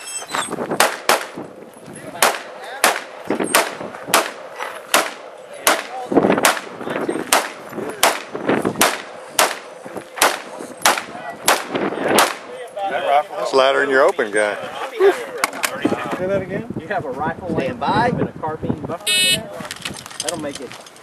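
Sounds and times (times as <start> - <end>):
rifle shots with ringing echo: 0.8 - 1.4, 2.2 - 12.5.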